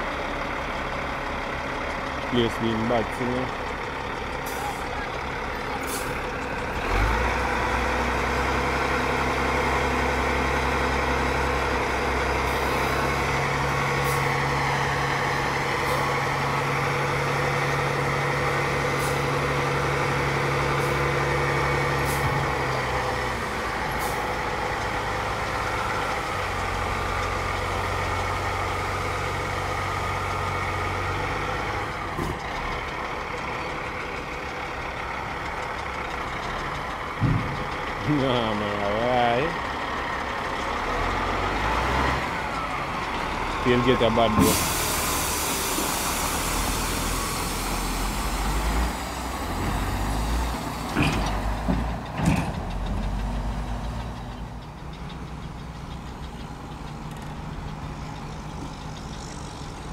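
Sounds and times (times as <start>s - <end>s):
diesel truck engines running: 0.0s - 59.9s
air brake hisses: 44.4s - 47.8s.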